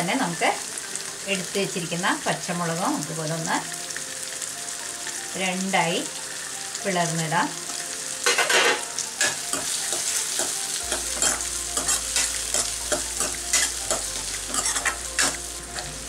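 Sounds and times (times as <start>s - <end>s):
food sizzling in oil: 0.0s - 16.0s
metal ladle scraping pan: 8.2s - 15.9s.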